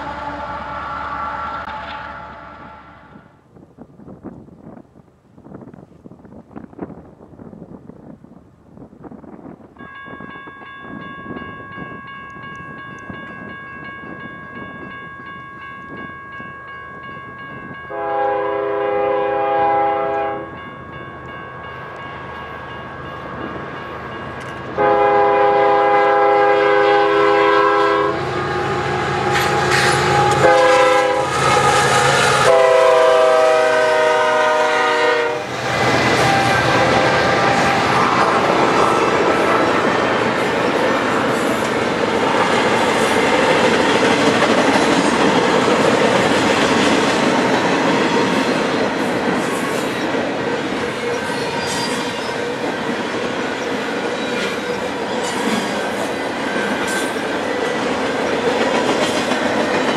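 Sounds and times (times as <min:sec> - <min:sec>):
locomotive horn blasts: 0:00.0 - 0:03.3, 0:17.9 - 0:20.6, 0:24.8 - 0:38.5
train rumble: 0:00.0 - 0:59.9.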